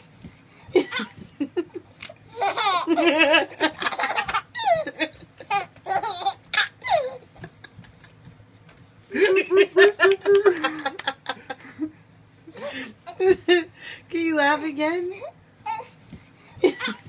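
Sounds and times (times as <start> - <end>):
baby laughing: 2.3 - 7.8, 16.6 - 17.0.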